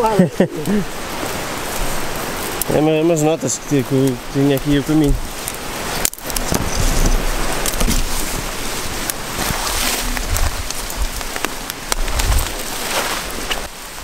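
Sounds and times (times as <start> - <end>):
branches crackling and snapping: 0.0 - 14.0
low handling thumps: 4.6 - 5.4
fabric rubbing on microphone: 6.3 - 13.7.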